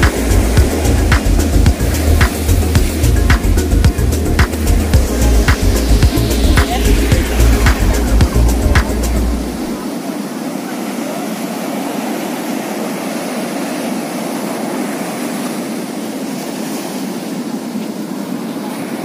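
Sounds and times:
waves breaking on sand: 0.0 - 19.0.

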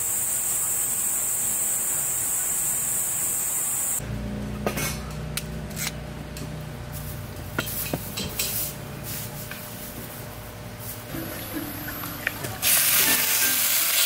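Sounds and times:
low steady hum: 4.0 - 13.6
utensils and dishes clinking: 4.6 - 6.0, 7.6 - 8.8, 11.1 - 14.0.

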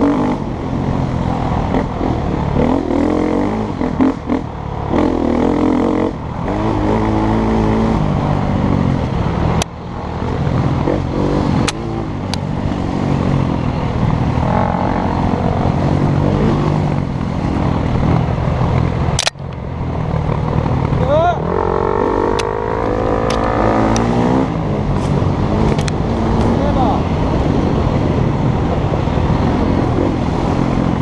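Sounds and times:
motorbike engine revving: 0.0 - 19.3, 20.0 - 31.0
sharp clicks: 19.1 - 19.6, 23.2 - 24.1.

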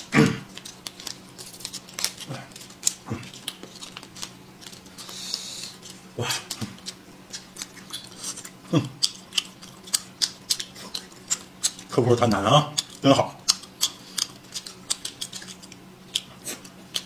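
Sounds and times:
chewing: 0.4 - 12.0, 12.6 - 17.0
plastic packets crinkling: 0.5 - 4.9
packet tearing rustle: 0.5 - 6.0.

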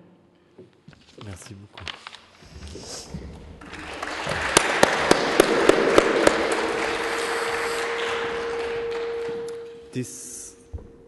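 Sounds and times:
audience applauding: 3.6 - 9.7.

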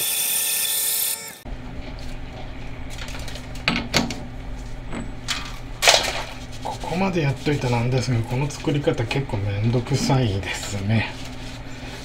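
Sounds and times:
drill cutting metal bar: 0.0 - 1.4.

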